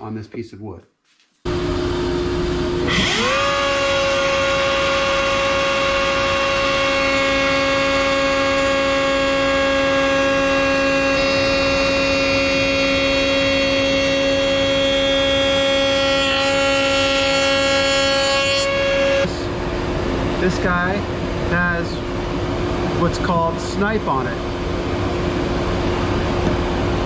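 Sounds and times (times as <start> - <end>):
router high whine: 1.5 - 24.4
router bit cutting wood: 2.8 - 19.4.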